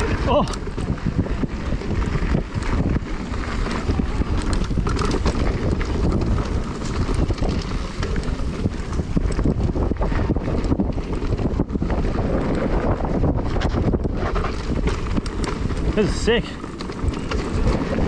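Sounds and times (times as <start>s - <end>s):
bike rattling over bumps: 0.0s - 18.0s
bike tyres rolling on dirt: 0.0s - 18.0s
wind buffeting microphone: 0.0s - 18.0s.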